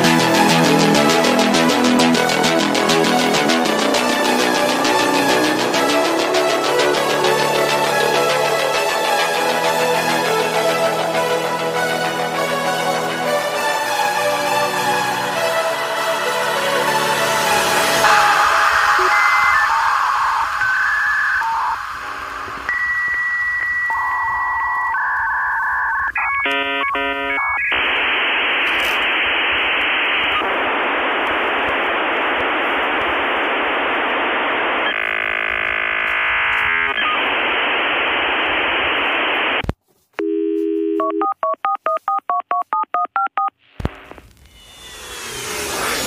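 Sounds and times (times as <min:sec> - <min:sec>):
loud modem hiss: 0:16.4 - 0:24.7, 0:26.2 - 0:39.6
low dial tone: 0:18.0 - 0:44.2
touch-tone dialing beeps: 0:22.7 - 0:27.7, 0:40.2 - 0:43.5.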